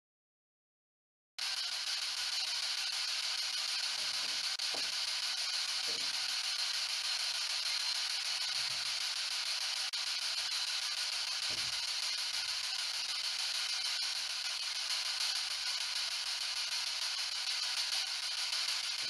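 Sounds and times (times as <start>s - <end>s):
radio static hiss: 3.8s - 6.4s.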